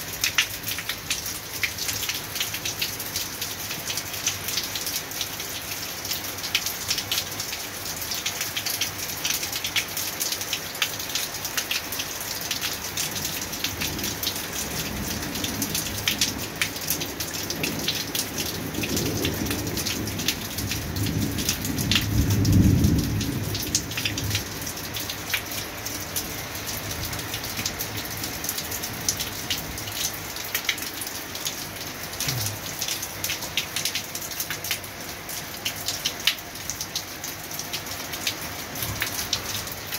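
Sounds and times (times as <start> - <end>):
rain pattering: 0.0 - 39.9
thunder rumbling: 18.8 - 24.6.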